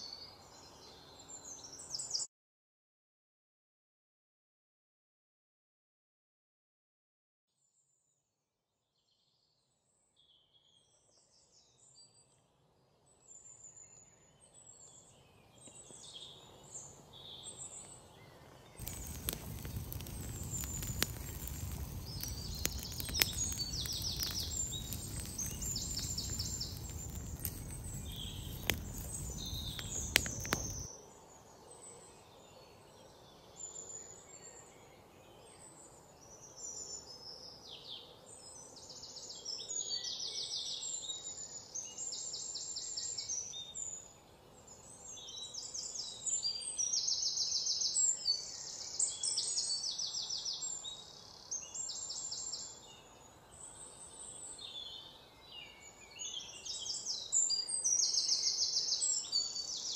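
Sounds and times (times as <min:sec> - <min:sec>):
birds chirping: 0:18.8 - 0:30.9
campfire flame rushing: 0:18.8 - 0:30.9
fire crackling and popping: 0:18.8 - 0:30.9.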